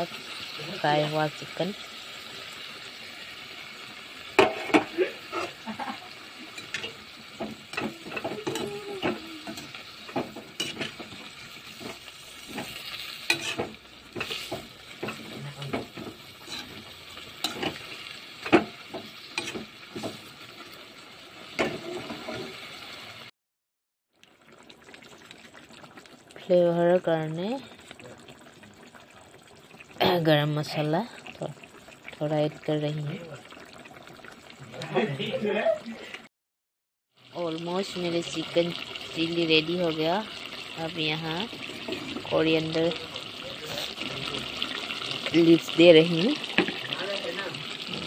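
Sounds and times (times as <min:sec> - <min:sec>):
food sizzling in a wok: 0:00.0 - 0:23.3, 0:24.4 - 0:36.1, 0:37.1 - 0:48.0
spatula scraping against pan: 0:04.4 - 0:05.6, 0:06.4 - 0:20.3.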